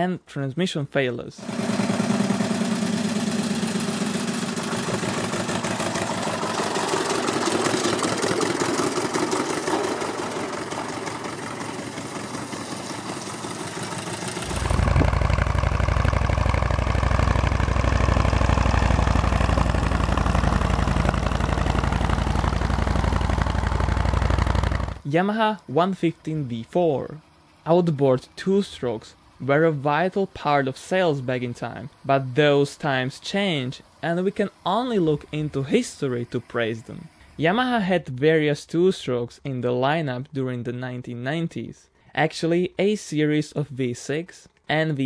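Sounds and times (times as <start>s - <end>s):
tractor diesel engine running: 1.4s - 37.4s.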